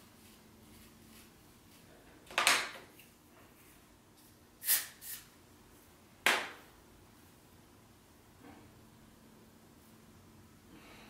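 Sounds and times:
spray bottle hissing: 4.6 - 5.3.

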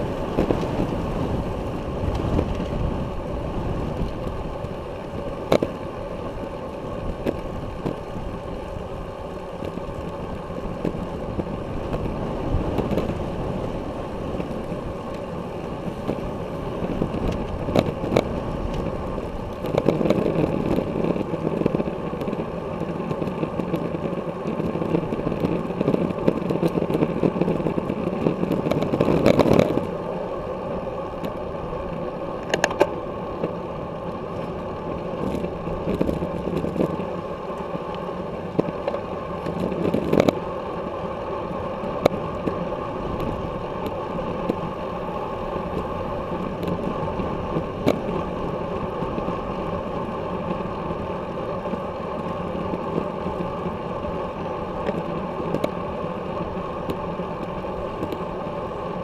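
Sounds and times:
tyre and road noise: 0.0 - 59.0
wind rushing over microphone: 0.0 - 59.0
bike knocks and rattles: 14.3 - 29.9, 32.4 - 33.6, 35.2 - 37.2.

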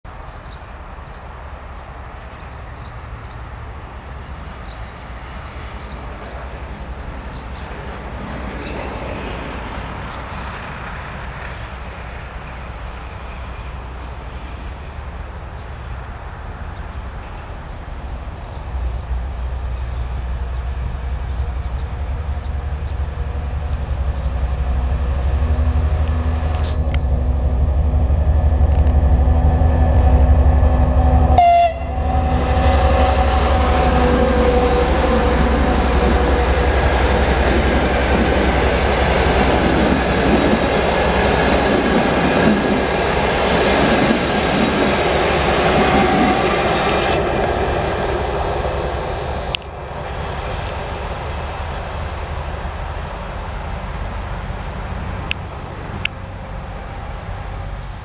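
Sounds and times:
diesel locomotive engine rumbling: 0.1 - 58.0
train horn: 25.5 - 38.8, 45.6 - 48.4.

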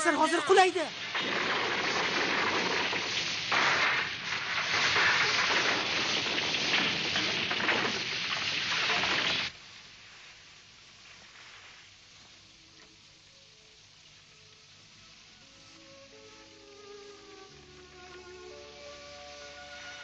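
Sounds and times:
faint hiss: 0.0 - 20.0
fire and falling debris rushing: 0.5 - 9.6.

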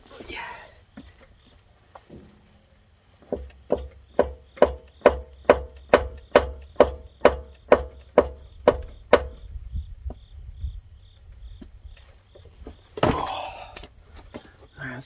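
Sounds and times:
rhythmic thuds on rubber track: 3.2 - 10.3.

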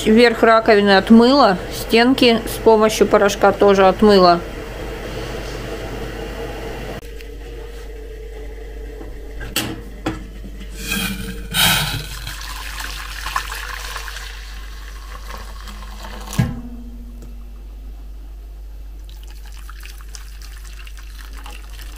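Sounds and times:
dishwasher water rushing: 10.7 - 16.7, 19.0 - 21.9.

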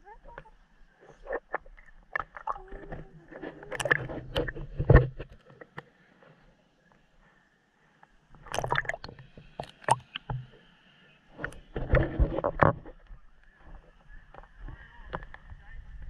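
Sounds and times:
pool water splashing: 8.4 - 10.5.

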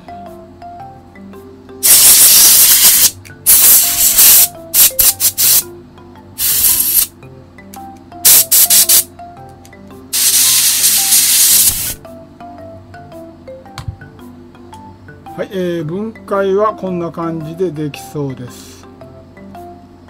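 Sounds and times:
quiet background music: 0.0 - 20.0
compressed air spraying: 1.8 - 5.6, 6.4 - 7.1, 8.2 - 9.1, 10.1 - 12.0.

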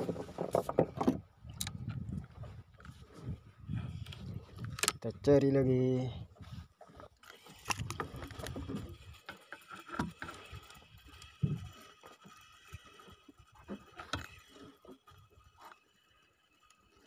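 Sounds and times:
knocks and clicks on wooden boat: 0.0 - 1.7.

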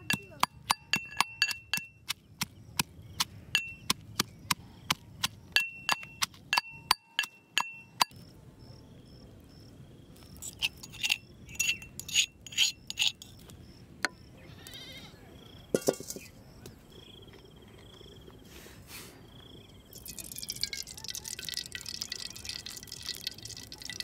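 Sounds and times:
metal clinks: 0.0 - 1.9
pestle pounding in iron mortar: 0.0 - 8.1.

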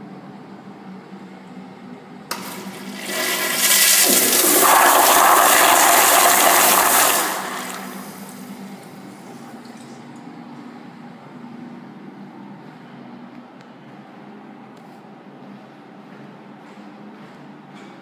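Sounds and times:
flush valve click: 2.3 - 2.8
toilet flushing water rush: 2.3 - 8.7.

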